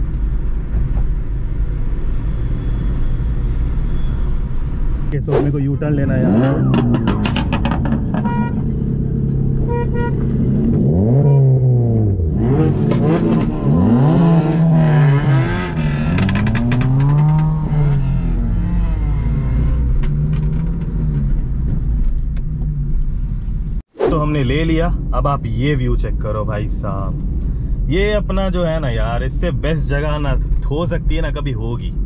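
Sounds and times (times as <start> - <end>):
car engines revving: 1.2 - 23.3.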